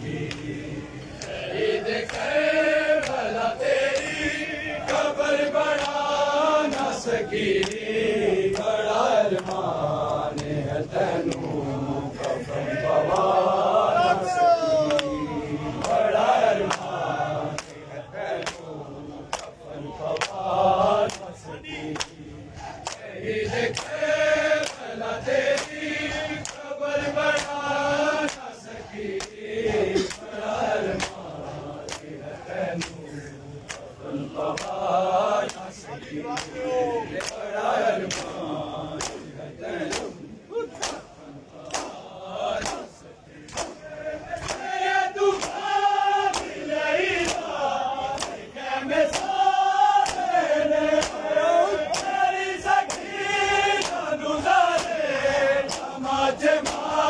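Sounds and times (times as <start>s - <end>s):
crowd of men chanting: 0.0s - 57.0s
hands slapping chests: 0.2s - 0.5s, 3.0s - 3.2s, 5.7s - 6.0s, 6.6s - 6.9s, 7.6s - 7.8s, 8.5s - 10.6s, 17.5s - 17.8s, 18.4s - 18.7s, 19.3s - 20.4s, 21.0s - 21.3s, 22.0s - 23.1s, 23.7s - 24.0s, 24.6s - 24.9s, 25.5s - 25.8s, 26.4s - 26.7s, 27.3s - 27.6s, 28.2s - 28.5s, 29.2s - 29.4s, 30.0s - 30.3s, 31.0s - 31.2s, 31.8s - 34.8s, 35.4s - 35.7s, 36.3s - 38.4s, 39.0s - 42.0s, 42.6s - 46.6s, 47.2s - 48.4s, 49.0s - 49.4s, 50.0s - 50.4s, 51.0s - 52.2s, 52.8s - 53.2s, 53.8s - 54.1s, 55.6s - 56.0s, 56.6s - 57.0s.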